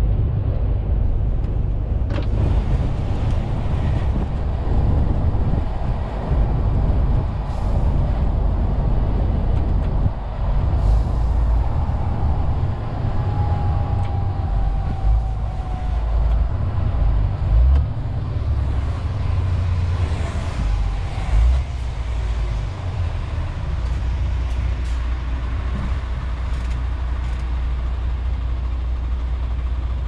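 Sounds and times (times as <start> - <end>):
diesel truck engine rumble: 0.0 - 30.0
tyre and road noise: 0.0 - 30.0.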